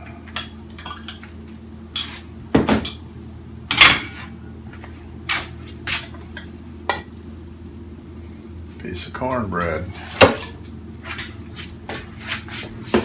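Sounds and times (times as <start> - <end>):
metal utensils clattering on pots: 0.4 - 1.3.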